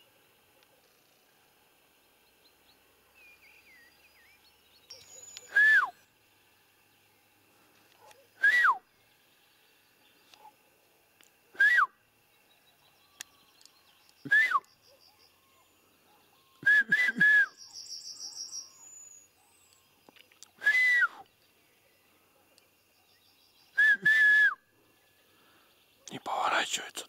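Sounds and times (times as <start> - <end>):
songbird trilling: 3.2 - 5.6, 17.5 - 19.8.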